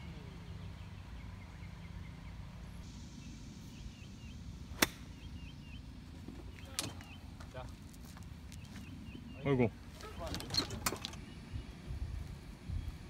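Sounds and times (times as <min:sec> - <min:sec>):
low steady rumble: 0:00.0 - 0:13.0
golf club striking ball: 0:04.7 - 0:05.3.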